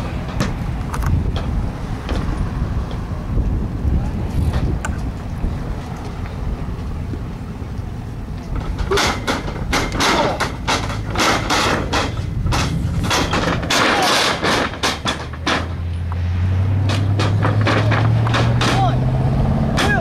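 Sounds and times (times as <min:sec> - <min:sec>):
vehicle engine humming: 0:00.0 - 0:20.0
wind rumble on microphone: 0:00.0 - 0:20.0.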